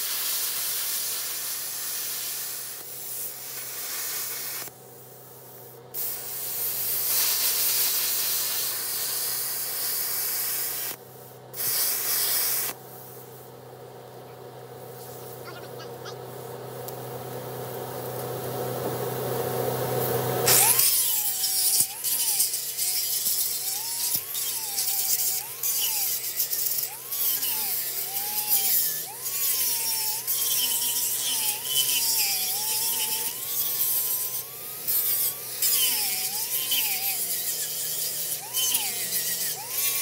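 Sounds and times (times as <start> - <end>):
plasma cutter hissing: 0.0 - 13.5, 20.4 - 40.0
angle grinder whine: 8.7 - 12.8, 17.9 - 40.0.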